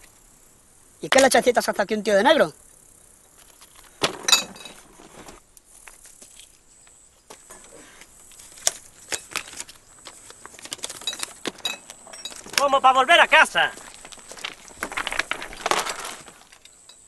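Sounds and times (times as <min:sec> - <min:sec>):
small hard objects clinking: 0:03.4 - 0:05.1, 0:08.4 - 0:17.0.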